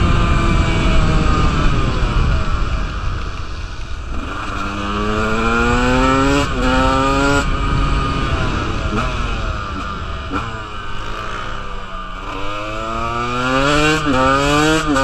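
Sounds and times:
wind on microphone: 0.0s - 11.7s
dirt bike engine accelerating: 0.0s - 15.0s.

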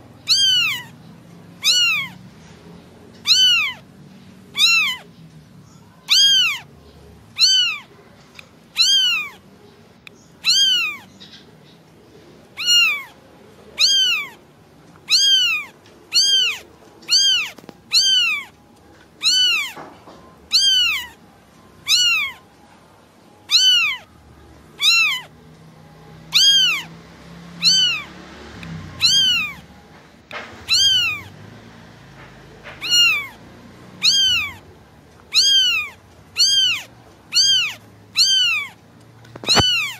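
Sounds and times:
kitten meowing: 0.2s - 1.0s, 1.6s - 2.2s, 3.2s - 3.9s, 4.5s - 5.1s, 6.0s - 6.7s, 7.4s - 7.9s, 8.7s - 9.4s, 10.4s - 11.1s, 12.6s - 13.2s, 13.8s - 14.4s, 15.0s - 18.5s, 19.2s - 19.9s, 20.5s - 21.2s, 21.8s - 22.4s, 23.5s - 24.1s, 24.8s - 25.3s, 26.2s - 26.9s, 27.6s - 29.7s, 30.6s - 31.3s, 32.8s - 34.7s, 35.3s - 39.9s.

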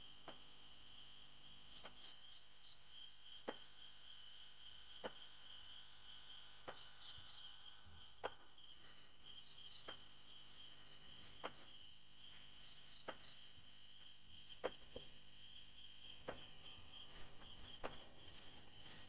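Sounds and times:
crickets chirping: 0.2s - 19.0s.

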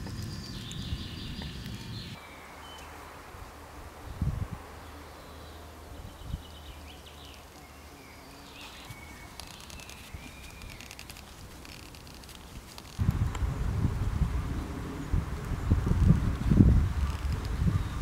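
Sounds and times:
faint birds chirping: 0.0s - 13.0s, 14.0s - 18.0s
low steady rumble: 13.0s - 18.0s.

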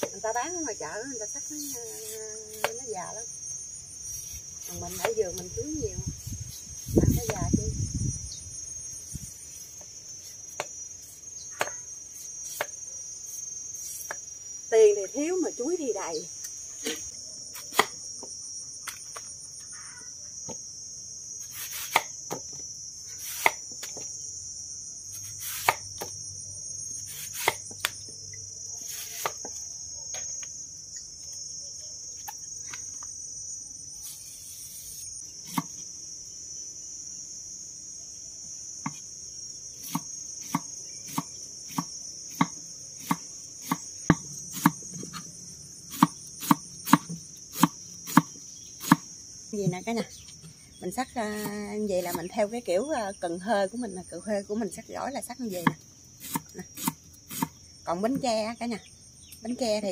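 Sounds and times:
insects chirring: 0.0s - 59.9s
cleaver chopping on wooden board: 35.5s - 35.8s, 39.8s - 44.8s, 45.9s - 49.0s.

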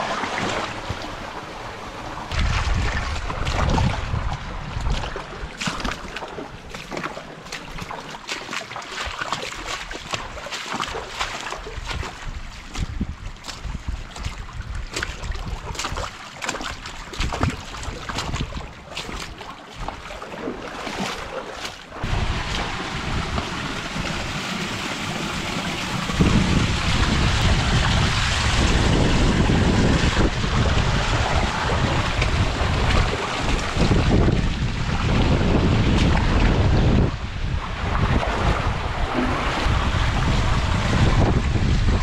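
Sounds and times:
creek water rushing: 0.0s - 42.0s
wind rumble on microphone: 0.0s - 42.0s
footsteps on rock: 6.8s - 20.1s.

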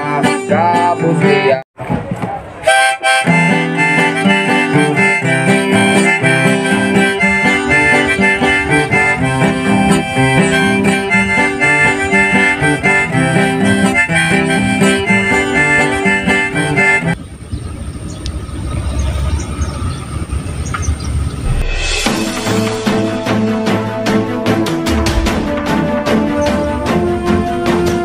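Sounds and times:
harmonica and guitar music: 0.0s - 1.6s, 2.7s - 17.2s.

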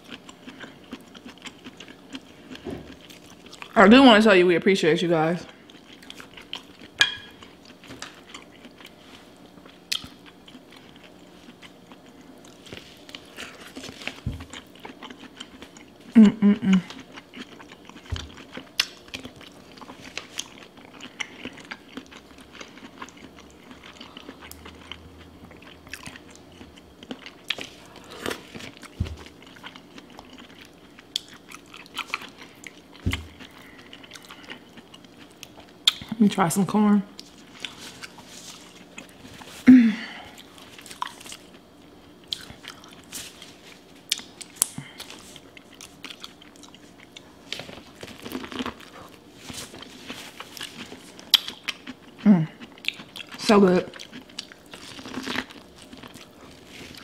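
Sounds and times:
chewing and lip smacks: 0.0s - 3.8s, 9.6s - 15.9s, 16.9s - 36.2s, 42.2s - 43.2s, 44.0s - 57.0s.

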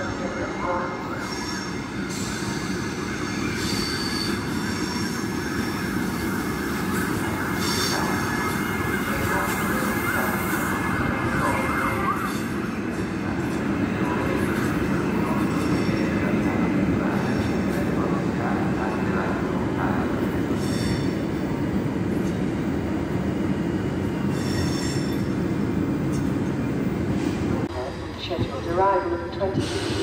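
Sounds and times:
train rumbling past: 0.0s - 30.0s
train wheels squealing: 1.0s - 9.0s, 20.6s - 21.2s, 24.2s - 25.4s.

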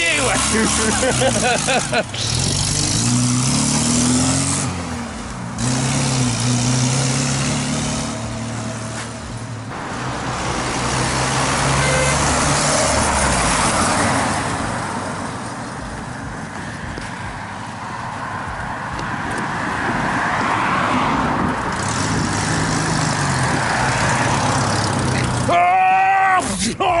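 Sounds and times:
road and wind noise: 0.0s - 27.0s
car engine running: 0.1s - 10.7s.

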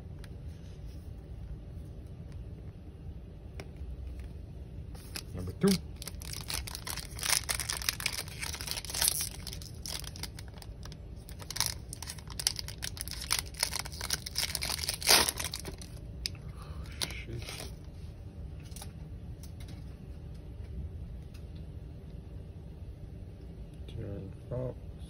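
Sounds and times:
cards rustling: 5.0s - 16.0s, 17.0s - 17.8s
foil wrapper crackling: 5.0s - 16.4s.

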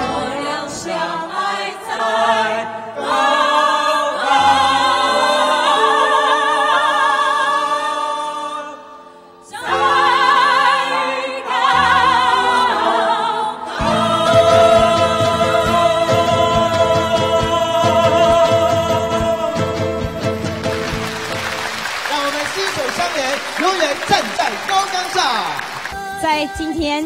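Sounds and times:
choir singing held notes: 0.0s - 26.2s
instrumental accompaniment: 9.5s - 24.7s.

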